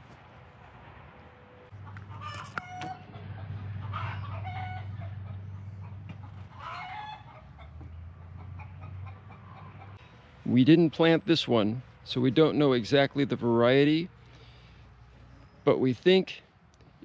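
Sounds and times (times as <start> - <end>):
chickens clucking: 1.8 - 10.1.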